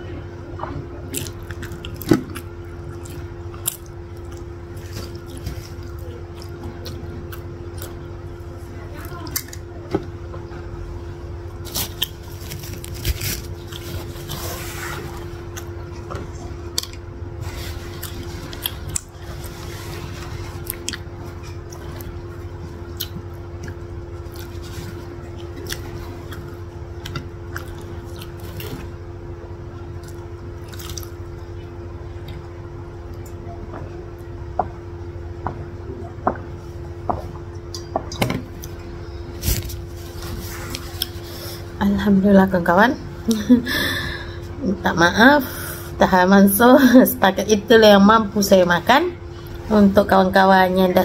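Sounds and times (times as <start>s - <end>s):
steady low hum: 0.0s - 51.0s
close chewing and biting: 1.1s - 8.1s, 11.6s - 15.9s, 17.8s - 29.0s, 30.0s - 31.3s.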